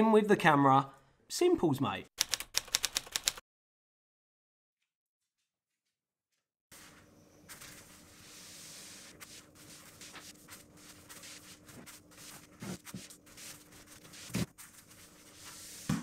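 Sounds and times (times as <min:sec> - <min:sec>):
toilet paper rubbing: 0:06.7 - 0:16.0
room hiss: 0:06.8 - 0:14.4.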